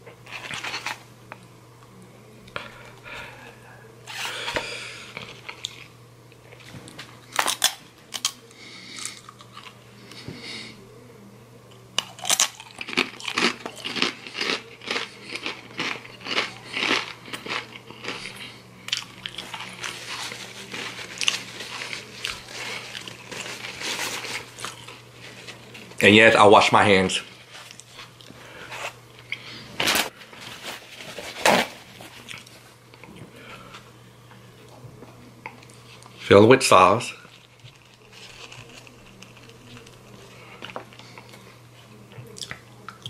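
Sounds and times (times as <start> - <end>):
tortilla chips crunching: 0.2 - 1.0, 6.5 - 9.8, 12.0 - 26.1, 27.4 - 32.6, 37.2 - 41.4.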